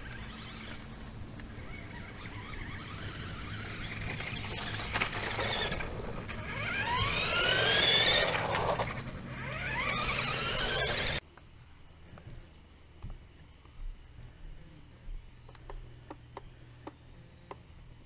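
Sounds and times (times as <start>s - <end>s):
toy car electric motor whining: 0.0s - 11.2s.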